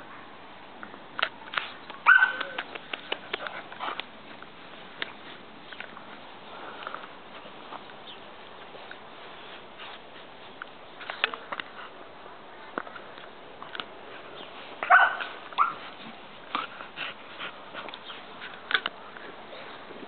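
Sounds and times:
puppies rustling in grass: 1.4 - 20.0
puppy yipping: 2.0 - 2.6, 14.8 - 15.8.

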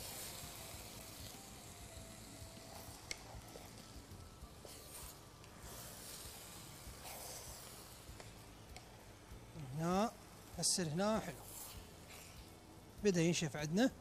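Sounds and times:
faint sizzling hiss: 0.0 - 14.0
wooden spoon scraping: 4.6 - 8.3, 11.3 - 12.5.

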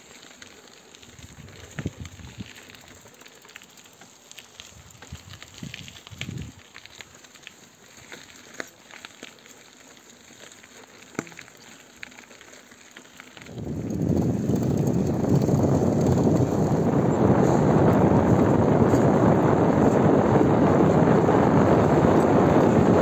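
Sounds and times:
bicycle tyres rolling on gravel: 0.0 - 23.0
wind rushing on microphone: 1.3 - 2.5, 5.1 - 6.6, 13.5 - 23.0.

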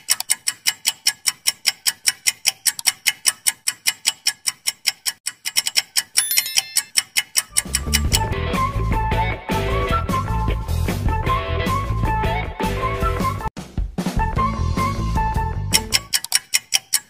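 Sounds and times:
clock ticking: 0.0 - 8.2, 15.7 - 17.0
high ringing: 6.2 - 7.0.

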